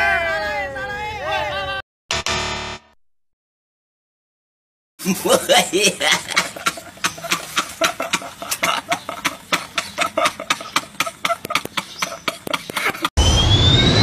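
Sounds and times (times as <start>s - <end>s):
men laughing hard: 5.0s - 13.1s.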